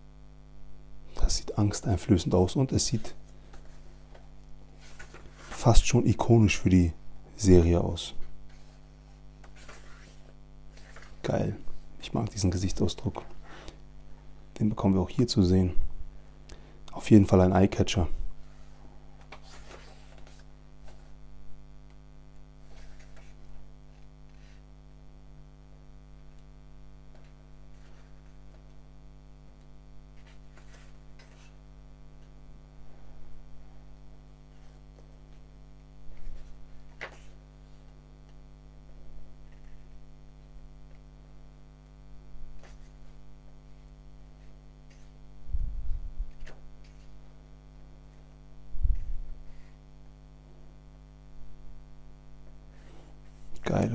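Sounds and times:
electrical mains hum: 0.0 - 53.9
book pages being turned: 2.8 - 5.9, 8.2 - 13.8, 18.4 - 21.2, 22.6 - 24.6, 27.1 - 28.8, 29.4 - 32.4, 34.5 - 40.0, 42.4 - 45.2, 46.2 - 49.8.

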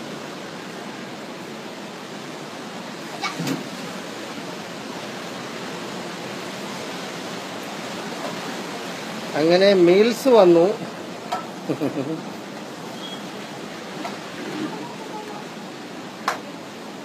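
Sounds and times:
vehicle road and wind noise: 12.4 - 16.3.

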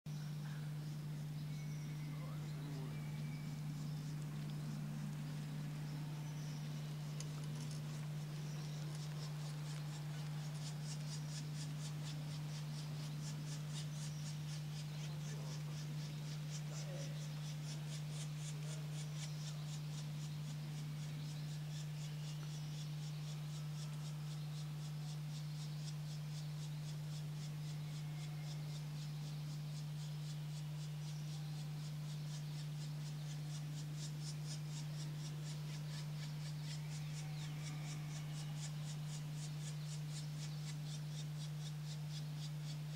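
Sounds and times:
steady low hum: 0.1 - 42.9
fast high-pitched rasping pulse: 2.2 - 42.9.

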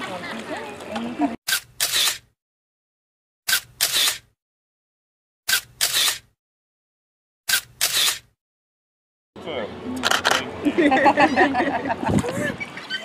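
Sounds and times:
camera shutter click: 1.5 - 2.3, 3.5 - 4.3, 5.5 - 6.3, 7.5 - 8.3.

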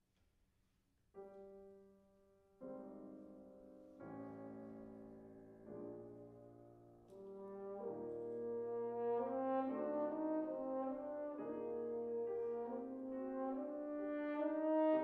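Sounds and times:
piano accompaniment: 1.2 - 15.0
french horn melody: 4.2 - 15.0.

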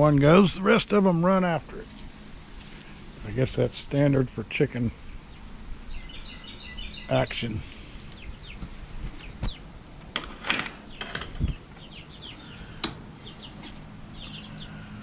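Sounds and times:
young chickens chirping: 4.9 - 9.7, 10.8 - 15.0.

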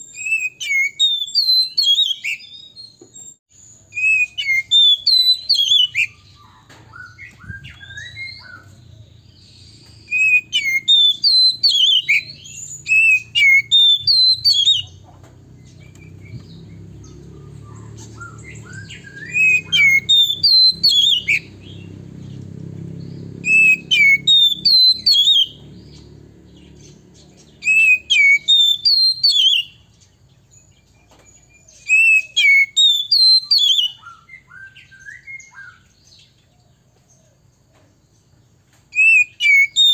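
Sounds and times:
magpie-robin whistled song: 0.0 - 36.5, 38.2 - 39.9
faint low rumble: 14.8 - 23.4.

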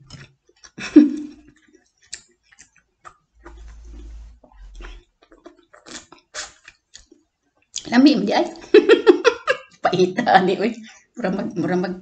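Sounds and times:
person gulping and swallowing: 2.6 - 6.4.

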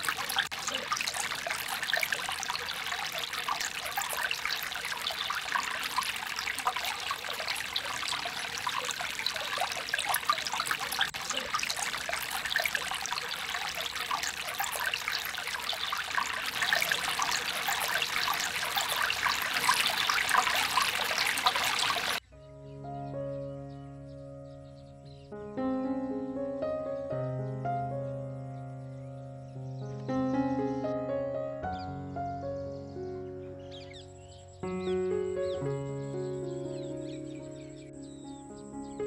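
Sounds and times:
stream trickling over rocks: 0.0 - 22.2.

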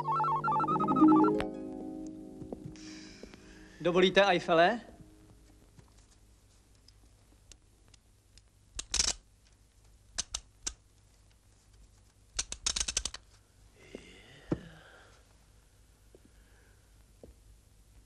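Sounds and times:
model being handled clicks and snaps: 6.8 - 11.4, 12.4 - 13.3.

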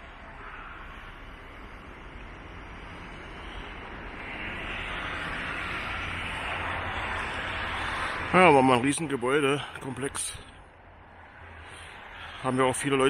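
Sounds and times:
vehicle rushing noise: 0.0 - 13.0.

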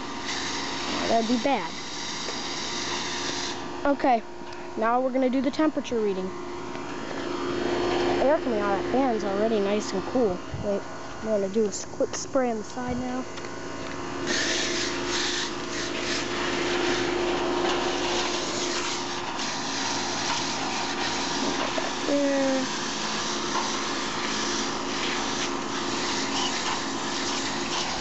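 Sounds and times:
air conditioner humming: 0.0 - 28.0
hose spray hissing: 18.1 - 28.0.

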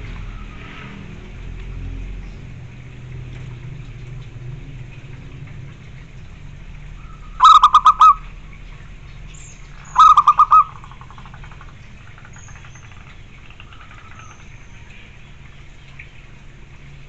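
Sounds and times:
dove cooing: 7.4 - 8.5, 9.8 - 11.8.

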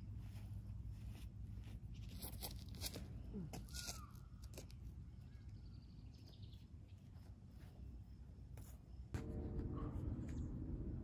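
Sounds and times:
wind rumble on microphone: 9.2 - 11.0.

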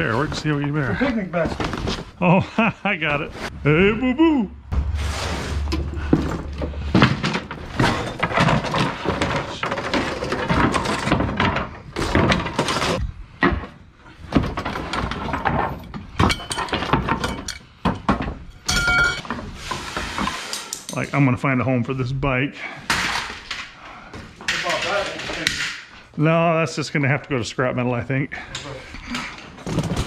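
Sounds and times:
junk thudding into truck: 5.4 - 17.2.

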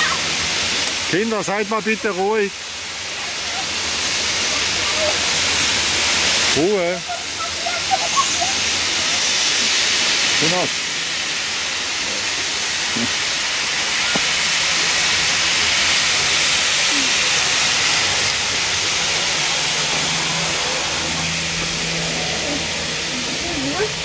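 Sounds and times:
steam locomotive venting steam: 0.0 - 24.0.

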